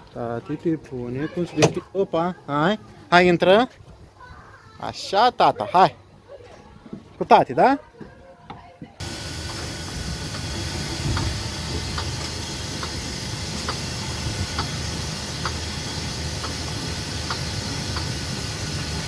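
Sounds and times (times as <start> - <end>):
ride car rumbling on track: 9.0 - 19.0.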